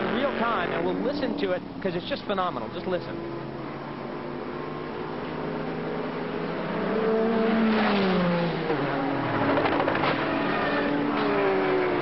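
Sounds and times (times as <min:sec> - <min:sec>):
race car engines passing: 0:00.0 - 0:12.0
car crash clattering and scraping: 0:07.6 - 0:08.3, 0:09.4 - 0:11.4.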